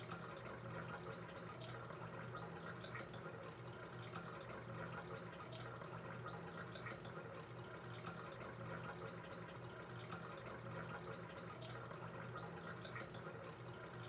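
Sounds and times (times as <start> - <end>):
small drip-like ticks: 0.0 - 14.0.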